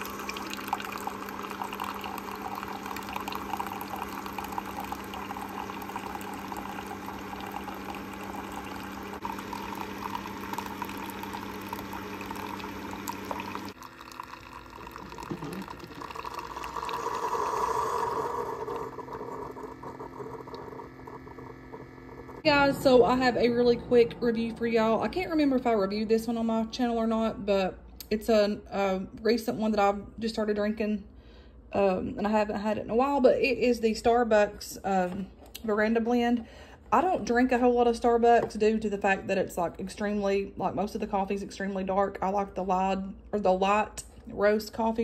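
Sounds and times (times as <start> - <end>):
coffee maker hiss: 0.0 - 21.4
coffee pouring into a mug: 0.0 - 22.4
coffee maker pump hum: 0.0 - 27.4.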